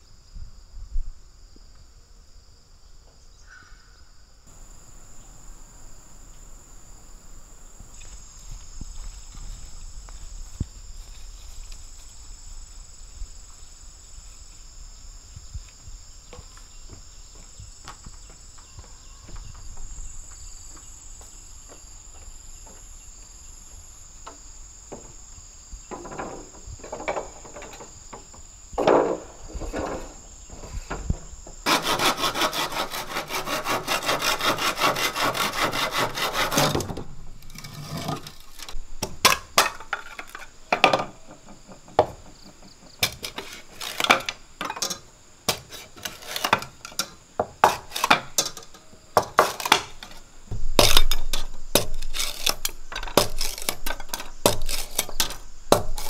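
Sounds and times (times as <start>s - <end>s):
high insect drone: 0.0s - 56.0s
hand saw cutting bamboo: 31.7s - 38.7s, 43.2s - 44.3s, 45.5s - 46.6s, 47.6s - 48.2s, 50.8s - 56.0s
knife splitting bamboo: 31.7s - 40.5s, 49.2s - 56.0s.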